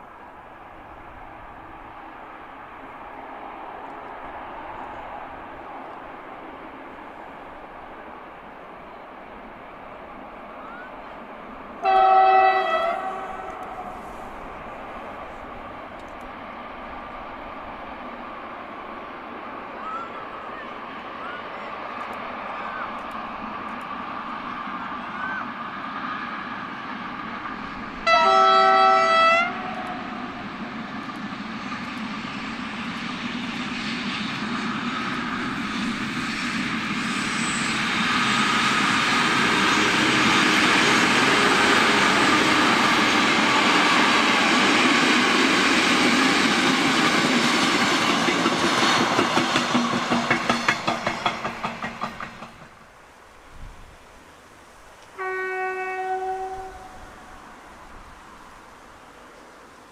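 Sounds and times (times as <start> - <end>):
passing train: 0.0 - 59.9
diesel locomotive horn: 11.8 - 14.2, 28.0 - 30.4, 39.5 - 44.1, 55.2 - 57.4
wheels clattering over rail joints: 46.1 - 53.0.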